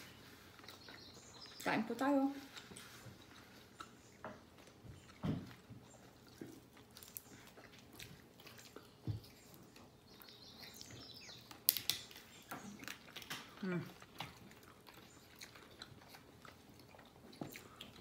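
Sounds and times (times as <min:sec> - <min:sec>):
person chewing and biting: 0:02.5 - 0:18.0
small clicks and smacks: 0:10.8 - 0:14.7.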